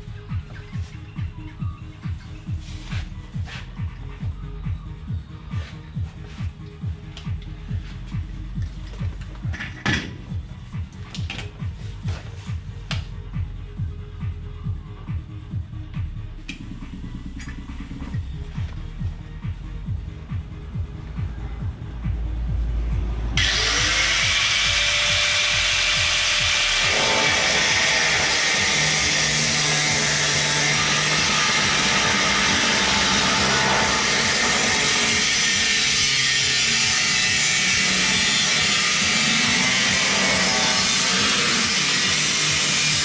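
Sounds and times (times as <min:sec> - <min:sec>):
power tool cutting sheet metal: 0:23.4 - 0:43.0.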